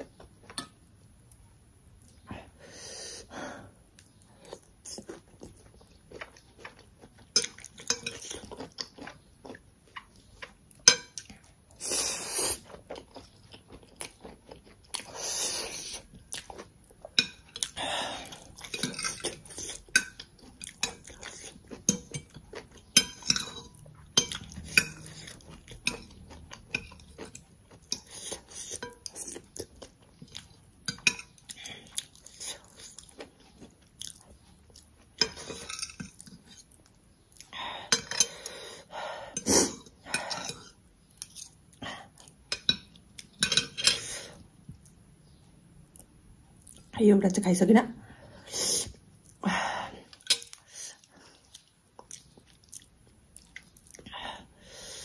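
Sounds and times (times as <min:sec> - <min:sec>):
close-up chewing: 0:04.0 - 0:38.7, 0:50.1 - 0:54.1
cutlery scraping a plate: 0:18.7 - 0:21.0, 0:22.9 - 0:26.1, 0:35.2 - 0:36.6, 0:42.5 - 0:44.3.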